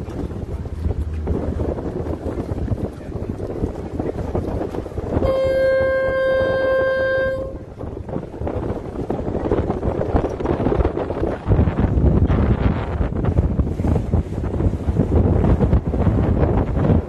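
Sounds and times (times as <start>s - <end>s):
boat rushing across choppy water: 0.0s - 17.0s
wind buffeting microphone: 0.0s - 17.0s
boat horn blast: 5.1s - 7.8s.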